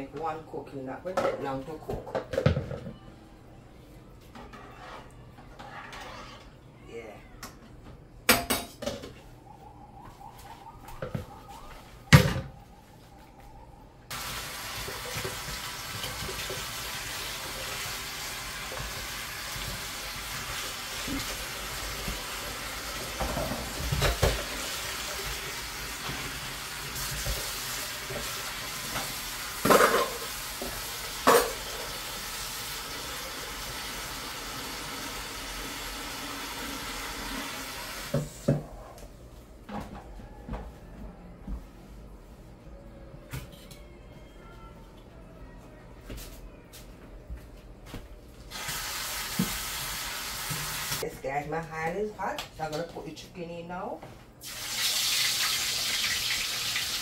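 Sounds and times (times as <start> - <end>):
dishes clattering in a sink: 1.1 - 3.0, 8.3 - 9.2, 23.1 - 24.7, 27.0 - 31.9.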